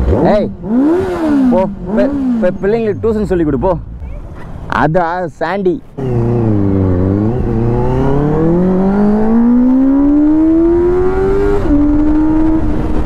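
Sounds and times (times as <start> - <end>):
motorcycle engine accelerating: 0.0 - 3.0, 6.0 - 13.0.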